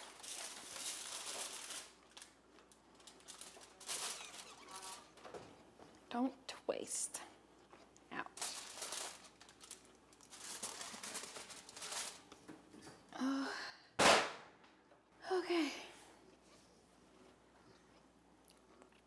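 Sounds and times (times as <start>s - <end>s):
aluminium foil crinkling: 0.0s - 5.4s, 8.1s - 12.4s.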